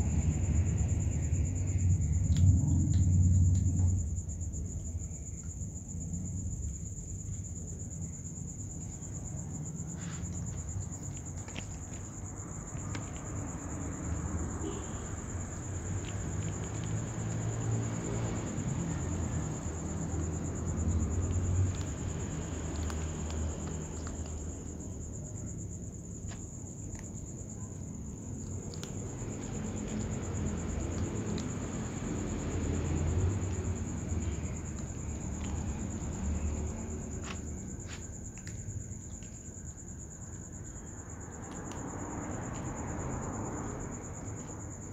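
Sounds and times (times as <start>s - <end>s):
low rumble: 0.0s - 7.2s
kittens crunching kibble: 9.8s - 25.1s, 26.1s - 40.5s, 41.5s - 41.8s.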